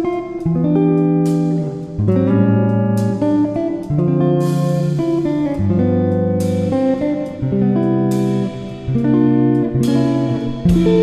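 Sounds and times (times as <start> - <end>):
plucked guitar music: 0.0 - 11.0
bass line: 7.9 - 11.0.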